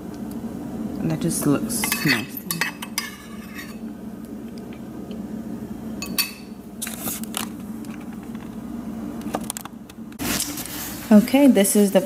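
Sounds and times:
steady low hum: 0:00.0 - 0:12.0
dishware clinking: 0:01.8 - 0:03.8, 0:06.0 - 0:06.5.

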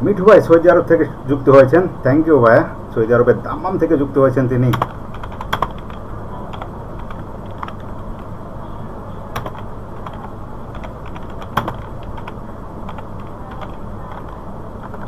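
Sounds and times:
low background hum: 0:00.0 - 0:15.0
keyboard keystrokes: 0:09.3 - 0:15.0.

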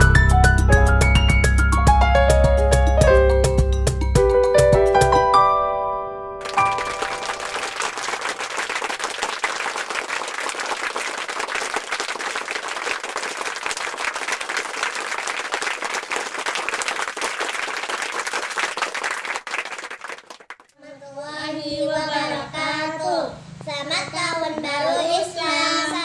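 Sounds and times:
crowd applauding: 0:06.4 - 0:20.7.

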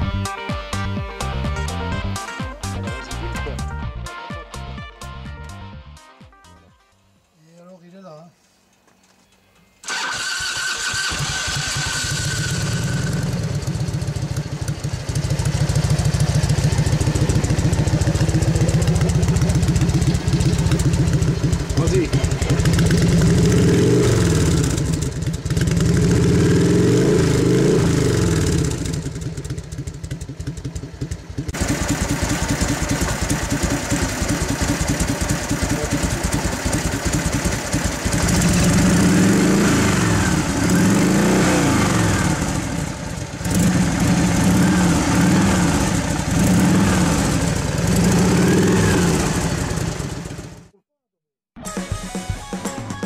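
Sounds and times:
motorcycle engine revving and idling: 0:09.2 - 0:50.8.

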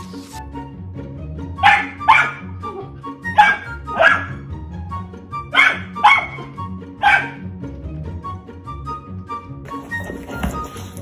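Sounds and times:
background music: 0:00.0 - 0:11.0
puppy barking: 0:01.6 - 0:02.5, 0:03.3 - 0:04.4, 0:05.5 - 0:07.5.

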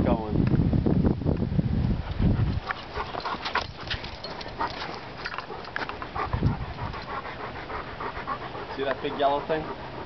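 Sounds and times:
dogs playing: 0:02.0 - 0:10.0.

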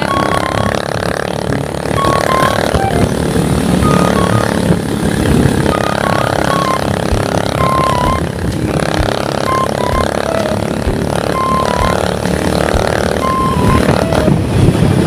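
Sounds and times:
motor scooter engine running: 0:00.0 - 0:15.0
road rumble: 0:00.0 - 0:15.0
wind noise on microphone: 0:00.0 - 0:15.0.

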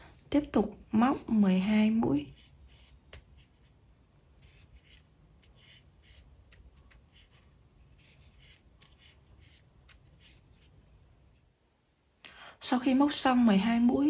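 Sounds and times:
crochet hook pulling yarn: 0:02.0 - 0:11.5.

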